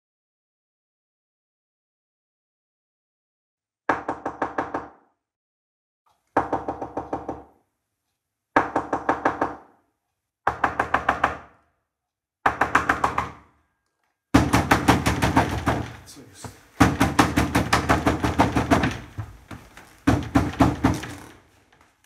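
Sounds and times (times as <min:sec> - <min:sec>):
knocking on a door: 0:03.9 - 0:05.0, 0:06.4 - 0:07.5, 0:08.6 - 0:09.7, 0:10.4 - 0:11.5, 0:12.4 - 0:13.5, 0:14.4 - 0:21.3.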